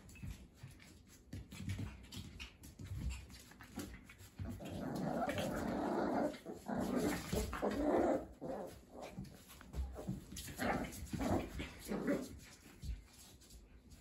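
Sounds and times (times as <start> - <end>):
puppies growling: 3.8 - 12.5.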